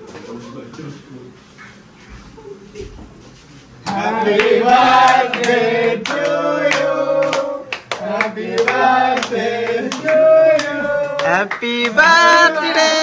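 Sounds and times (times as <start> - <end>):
people clapping: 3.9 - 13.0.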